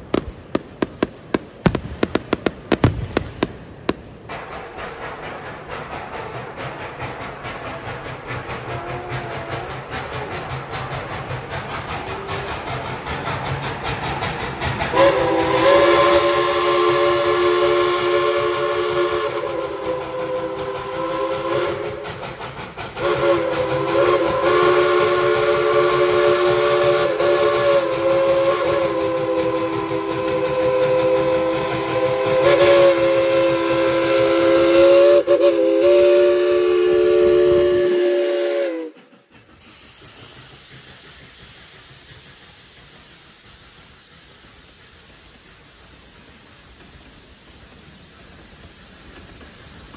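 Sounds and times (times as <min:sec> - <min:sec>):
steam hiss: 0:00.0 - 0:49.9
steam locomotive chime whistle: 0:14.9 - 0:22.2, 0:23.0 - 0:39.0.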